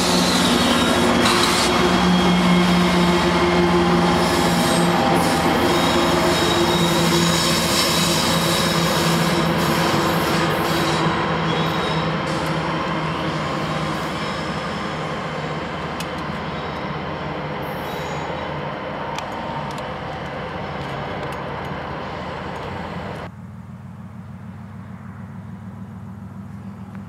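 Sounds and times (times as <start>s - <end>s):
diesel locomotive engine drone: 0.0s - 27.0s
wheel squeals: 0.1s - 14.9s, 17.6s - 18.6s.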